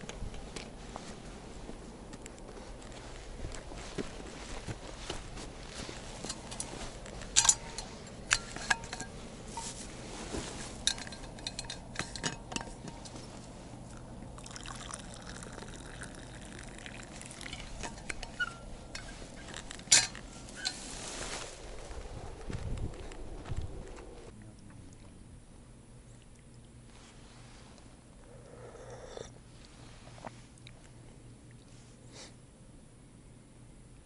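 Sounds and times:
lid and cup clinking: 10.8 - 13.1, 17.4 - 20.8
drink pouring into cup: 14.3 - 18.6.

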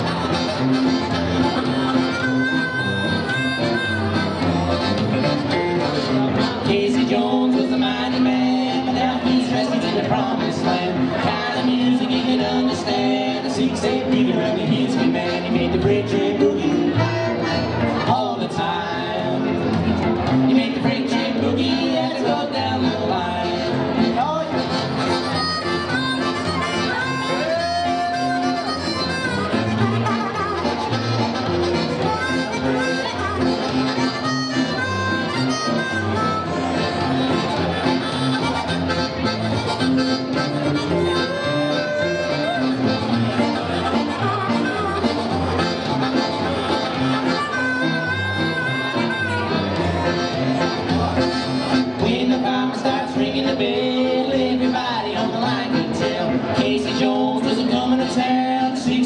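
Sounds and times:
harmonica lead: 0.0 - 58.9
accordion: 0.0 - 59.0
boogie band playing: 0.0 - 59.0
electric guitars: 0.0 - 59.0
upright double bass: 0.0 - 59.0.

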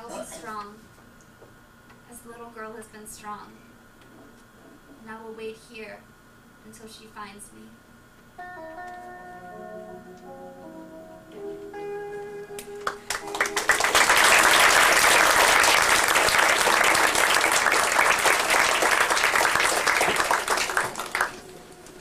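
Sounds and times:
soft music: 8.4 - 13.8
audience applauding: 12.8 - 22.0.

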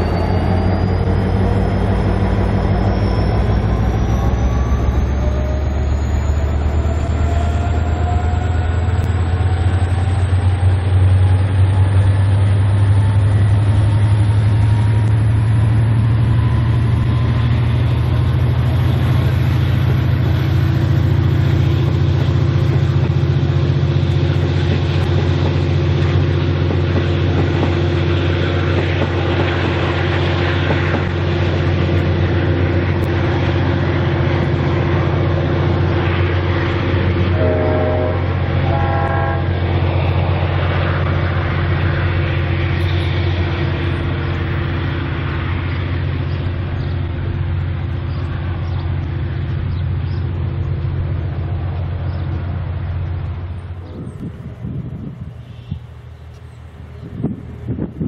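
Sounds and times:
diesel locomotive engine drone: 0.0 - 58.0
rising whine: 0.0 - 58.0.

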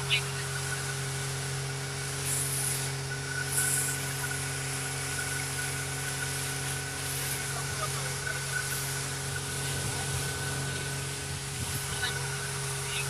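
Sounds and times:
engine hum: 0.0 - 13.0
short bursts of hiss: 2.1 - 7.6.

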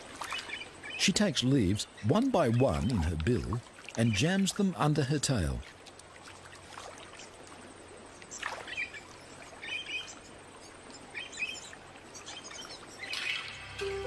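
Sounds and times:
faint outdoor background: 0.0 - 14.0
wild birds chirping: 0.0 - 14.0.

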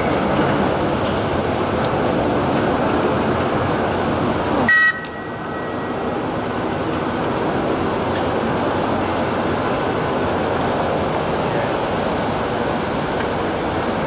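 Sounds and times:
locomotives rumbling: 0.0 - 14.0
short high horn toot: 4.7 - 6.0.

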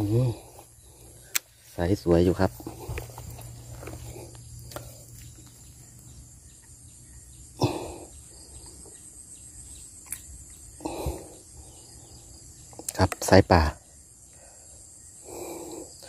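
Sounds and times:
crickets chirring: 0.0 - 16.0
rustling thumps in dry grass: 1.4 - 5.9.

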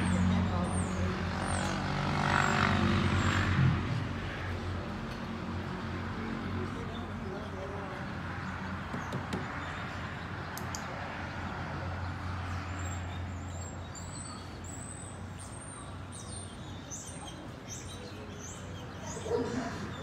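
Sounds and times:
small birds chirping: 5.1 - 20.0.

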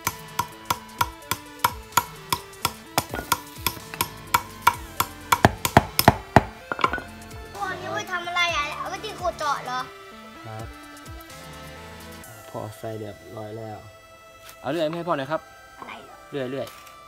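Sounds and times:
pestle tamping tube: 0.0 - 7.1
background music with knocking beat: 0.0 - 17.0.

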